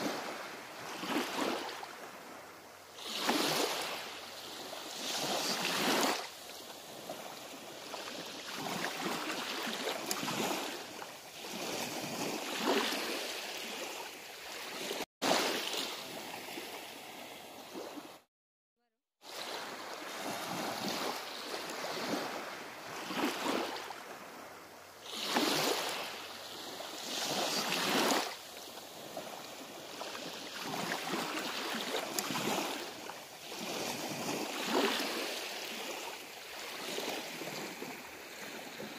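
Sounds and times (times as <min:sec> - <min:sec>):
small waves washing onto beach: 0:00.0 - 0:18.3, 0:19.1 - 0:38.9.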